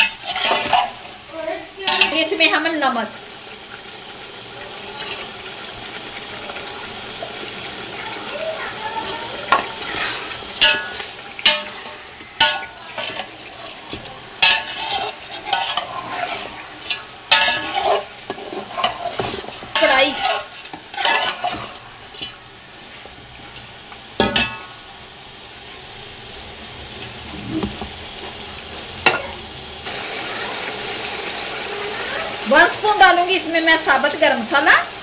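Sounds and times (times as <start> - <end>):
metal spatula scraping a pot: 0.0 - 1.2, 9.0 - 22.5
meat sizzling in a pot: 0.0 - 35.0.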